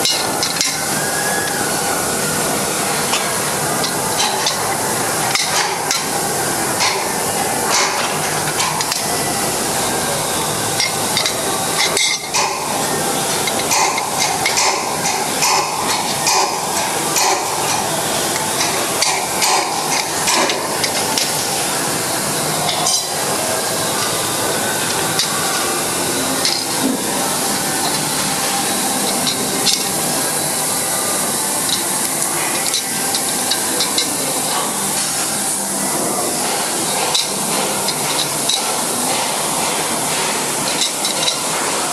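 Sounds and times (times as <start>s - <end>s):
wrench clinking on metal bolts: 13.4s - 16.6s.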